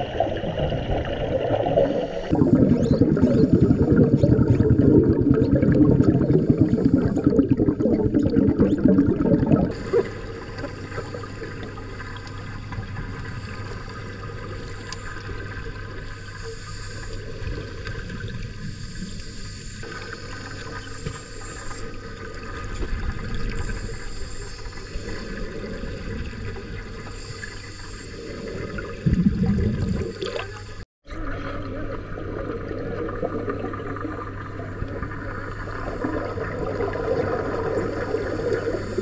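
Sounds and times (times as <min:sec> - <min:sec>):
underwater regulator bubbling: 0:00.0 - 0:11.8, 0:24.8 - 0:30.8.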